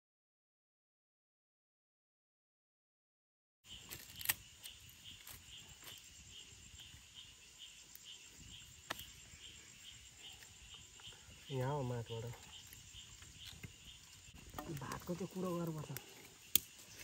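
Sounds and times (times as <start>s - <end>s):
crickets chirping: 3.6s - 17.0s
sharp clicks: 15.9s - 16.8s.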